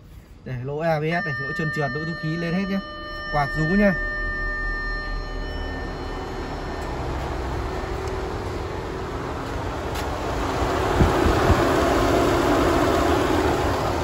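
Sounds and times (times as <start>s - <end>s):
radiator cooling fan roaring: 0.6s - 14.0s.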